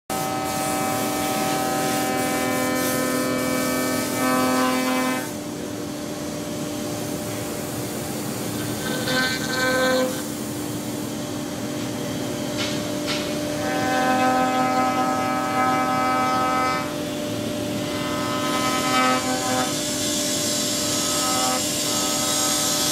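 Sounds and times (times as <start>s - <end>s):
tool cutting wood: 8.5s - 10.3s.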